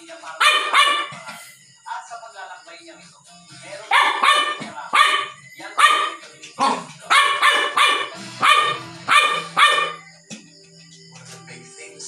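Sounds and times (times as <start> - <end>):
small dog barking: 0.4 - 1.3, 3.9 - 10.0.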